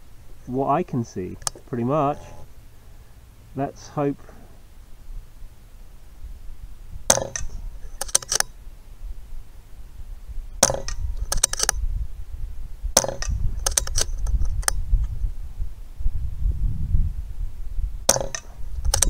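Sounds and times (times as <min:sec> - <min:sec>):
metallic clicks of rifle action: 0:01.3 - 0:01.8, 0:07.1 - 0:08.6, 0:10.6 - 0:11.8, 0:13.0 - 0:14.8, 0:18.1 - 0:19.0
wind rumble on microphone: 0:04.3 - 0:19.0
air rifle shots: 0:07.0 - 0:08.6, 0:10.6 - 0:11.8, 0:13.0 - 0:14.1, 0:18.1 - 0:19.0.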